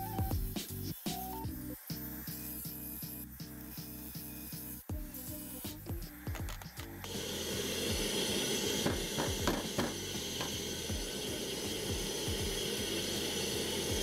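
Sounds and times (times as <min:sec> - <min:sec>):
shop vac running: 0:05.8 - 0:14.0
tile knocking: 0:08.8 - 0:10.0.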